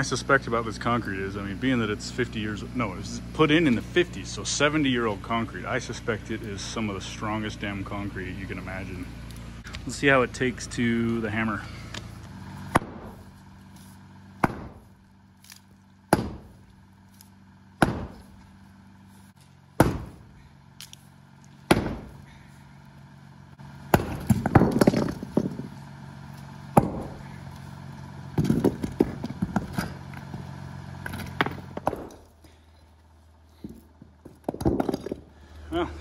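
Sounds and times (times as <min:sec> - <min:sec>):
engine idling: 0:00.0 - 0:36.0
sledgehammer striking concrete: 0:12.7 - 0:13.3, 0:14.4 - 0:15.0, 0:16.1 - 0:16.7, 0:17.8 - 0:18.4, 0:19.8 - 0:20.4, 0:21.7 - 0:22.3, 0:23.9 - 0:25.8, 0:26.7 - 0:27.4, 0:28.4 - 0:30.4, 0:31.0 - 0:32.3, 0:33.6 - 0:35.3.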